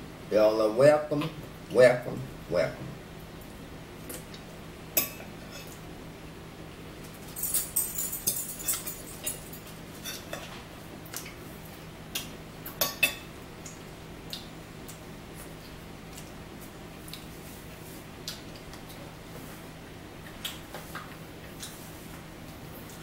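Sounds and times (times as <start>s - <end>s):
forks clinking on plates: 7.3s - 10.5s.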